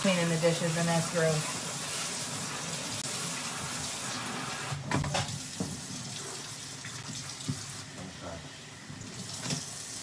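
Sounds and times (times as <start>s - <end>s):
faucet running into sink: 8.9s - 10.0s.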